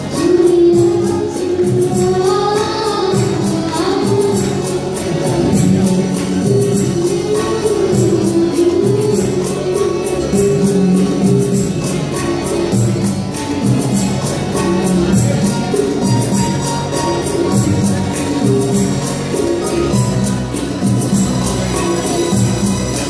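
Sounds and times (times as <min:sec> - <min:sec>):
person singing: 0:00.0 - 0:12.6
bass: 0:00.0 - 0:23.0
keyboard chords: 0:00.0 - 0:23.0.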